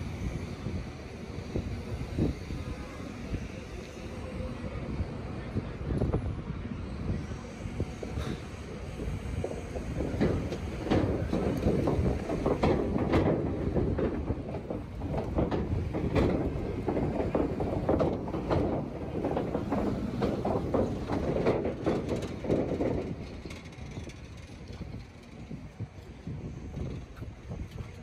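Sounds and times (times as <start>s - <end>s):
city street rumble: 0.0s - 28.0s
clattering knocks: 9.8s - 23.2s.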